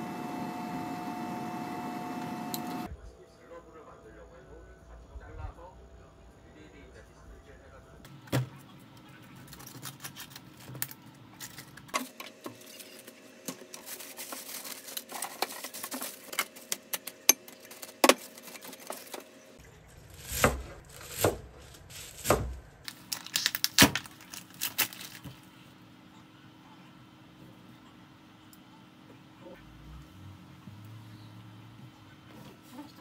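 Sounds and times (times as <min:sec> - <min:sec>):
plastic bag crinkling: 0:12.6 - 0:19.2, 0:20.0 - 0:25.4
cabbage leaves tearing: 0:19.9 - 0:25.2.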